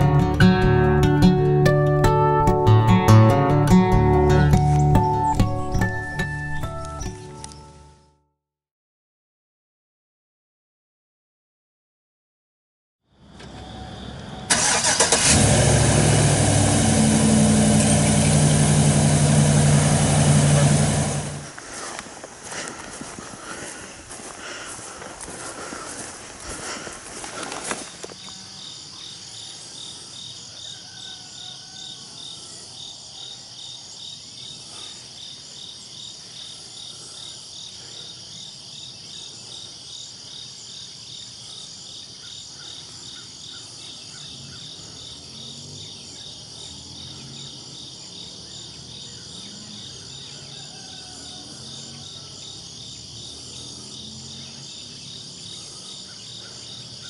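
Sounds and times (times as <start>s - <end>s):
crickets chirping: 13.2s - 15.3s, 21.4s - 57.0s
steady high insect drone: 22.6s - 57.0s.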